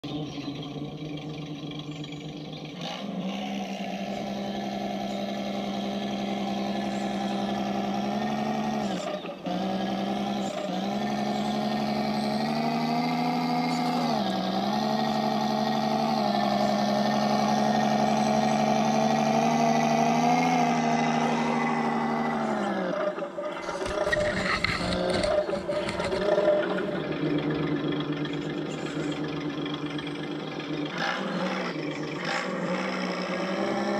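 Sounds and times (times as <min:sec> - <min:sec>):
electric motor whining: 0:03.2 - 0:30.3
toy truck clattering over rocks: 0:23.5 - 0:26.8.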